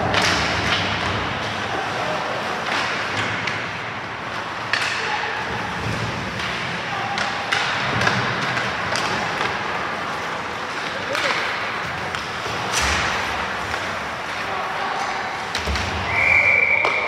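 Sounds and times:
skates scraping on ice: 5.4 - 16.2
stick hitting puck: 5.9 - 9.8.

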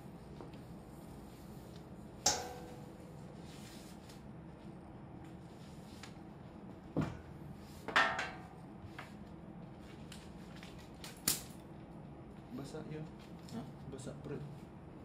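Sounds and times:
cloth wiping desk: 0.0 - 2.0, 2.7 - 4.8
low steady hum: 0.0 - 15.0.

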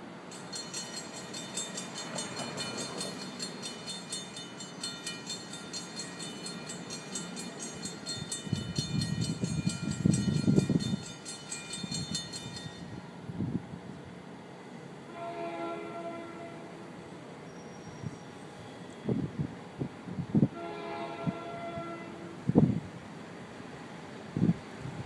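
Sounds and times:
train rumble: 0.0 - 25.0
crossing warning bell ringing: 0.1 - 13.3.

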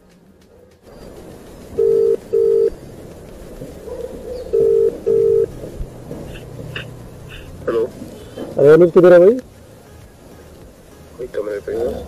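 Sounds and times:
phone ringback tone beeps: 1.8 - 2.7, 4.5 - 5.5.

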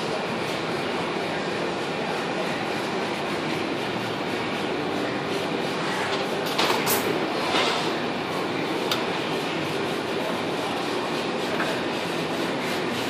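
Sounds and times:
machines rattling and humming: 0.0 - 13.0.

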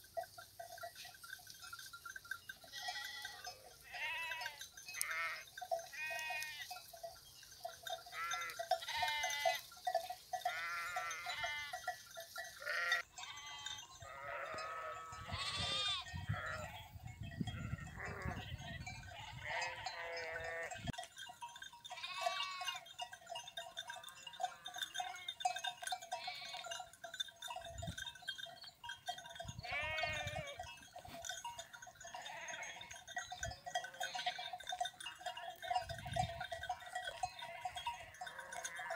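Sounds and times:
sheep bleating: 2.7 - 6.7, 8.1 - 9.6, 10.4 - 11.8, 12.6 - 16.8, 17.5 - 20.9, 21.9 - 22.8, 26.1 - 26.8, 29.6 - 30.7, 32.2 - 33.0, 33.8 - 34.8.

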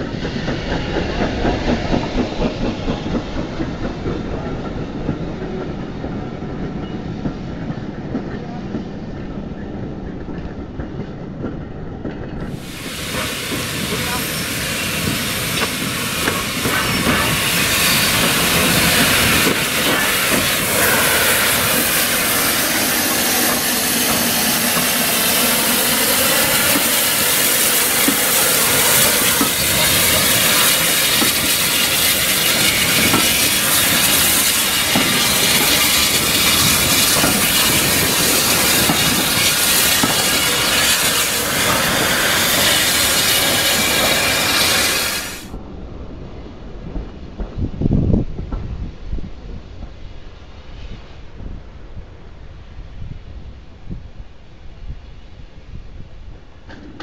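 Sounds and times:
carriages rolling on rails: 0.0 - 45.6
steam locomotive running: 0.0 - 45.6
steam hissing: 12.5 - 45.6.

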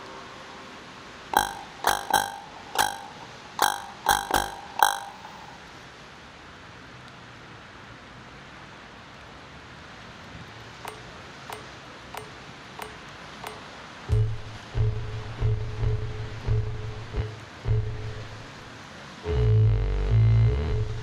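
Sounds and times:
loud low synth tone: 1.4 - 5.6, 14.1 - 18.6
sharp synthetic ticks: 1.4 - 5.6, 10.8 - 18.4.

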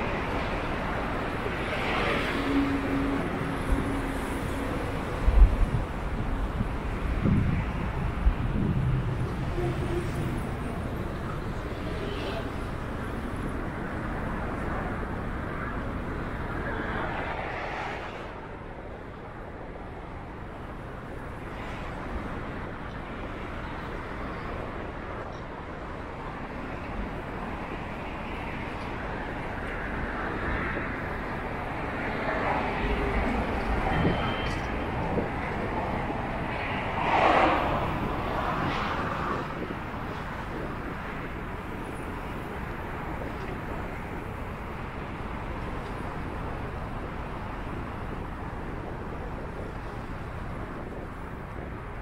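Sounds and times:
wind on microphone: 0.0 - 20.4, 28.4 - 52.0
wind rushing: 2.4 - 11.1, 34.9 - 41.9.

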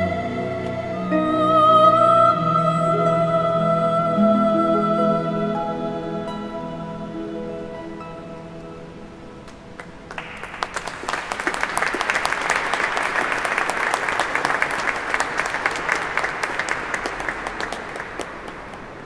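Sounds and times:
audience applauding: 9.8 - 19.0.

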